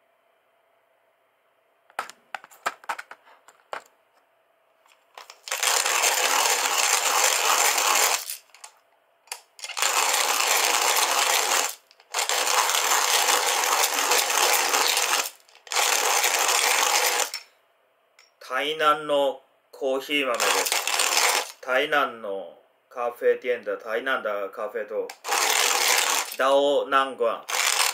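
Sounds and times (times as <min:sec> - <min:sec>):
hand coffee mill grinding: 0:05.2 - 0:08.7, 0:09.3 - 0:17.4, 0:20.3 - 0:21.6, 0:25.1 - 0:26.4, 0:27.4 - 0:27.9.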